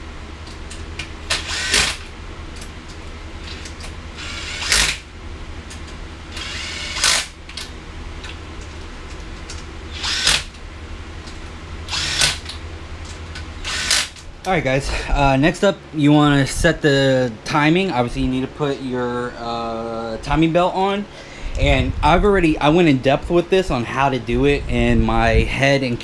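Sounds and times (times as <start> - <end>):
ratchet wrench clicking: 3.5 - 5.0, 11.9 - 12.6, 13.6 - 14.2.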